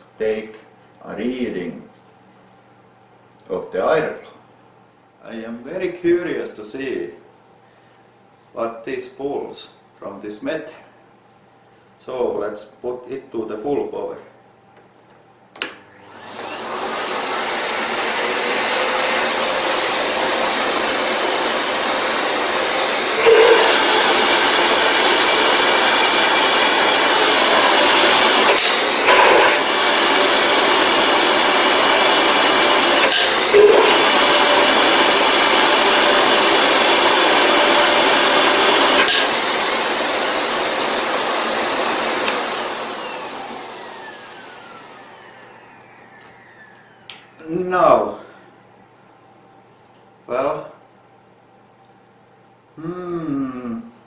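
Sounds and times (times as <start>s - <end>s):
vacuum cleaner motor running: 15.6s - 47.6s.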